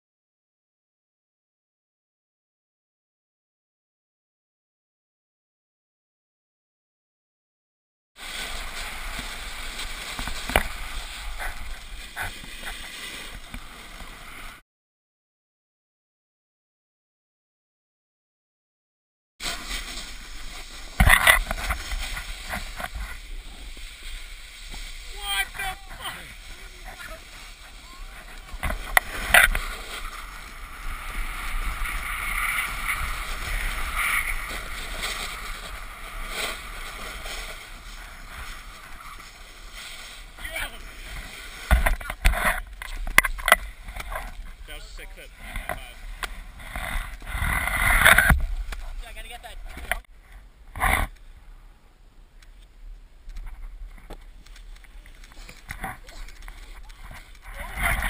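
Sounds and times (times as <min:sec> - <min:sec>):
scrapes on snow: 0:08.2 - 0:14.6, 0:19.4 - 0:50.1, 0:53.6 - 0:58.0
skis hissing on packed snow: 0:08.2 - 0:14.6, 0:19.4 - 0:41.8, 0:43.6 - 0:47.9, 0:54.6 - 0:58.0.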